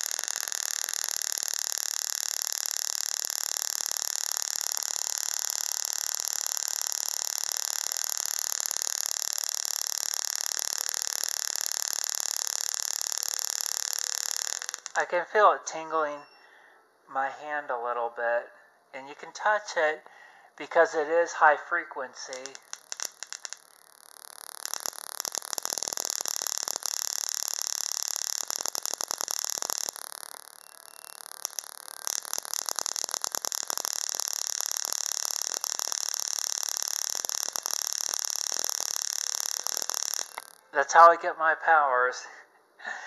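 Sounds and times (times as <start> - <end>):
tesla coil buzzing: 0.0 - 15.2, 22.0 - 41.1.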